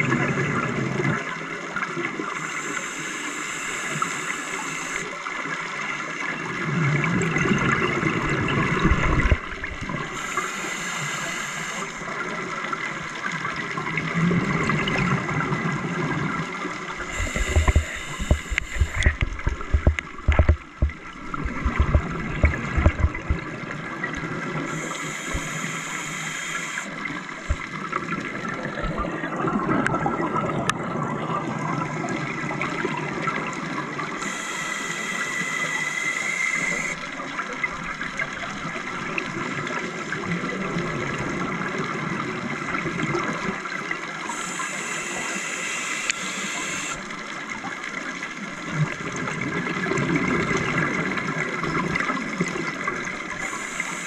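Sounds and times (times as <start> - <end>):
hissing regulator inhalation: 2.4 - 5.2, 10.1 - 12.2, 17.0 - 19.2, 24.6 - 27.7, 34.2 - 37.0, 44.3 - 47.1, 53.4 - 54.0
bubbles gurgling underwater: 6.4 - 10.2, 12.1 - 25.5, 26.9 - 34.2, 47.0 - 53.8.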